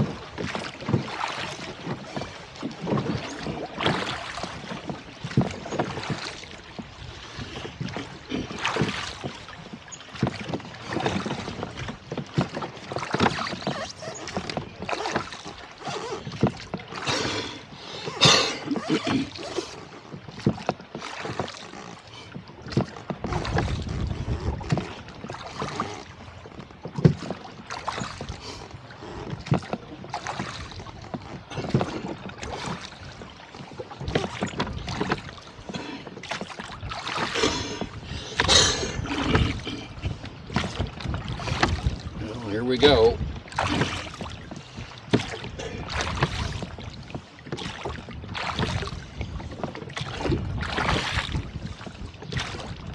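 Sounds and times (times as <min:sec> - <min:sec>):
wind on microphone: 0:00.0 - 0:09.3, 0:23.3 - 0:25.0, 0:36.8 - 0:52.9
water splashing against boat: 0:00.0 - 0:52.9.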